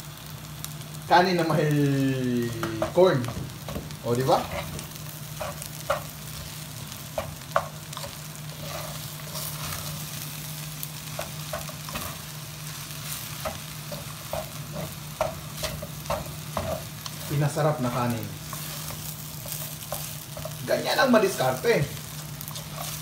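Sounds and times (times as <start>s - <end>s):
soft sizzle: 0.0s - 23.0s
wooden spatula scraping pan: 2.7s - 6.1s, 7.2s - 10.0s, 22.5s - 23.0s.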